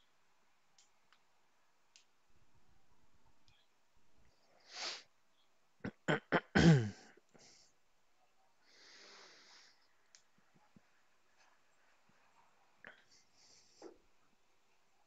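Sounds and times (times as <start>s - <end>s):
soft breath out: 8.6s - 9.9s, 12.8s - 14.0s.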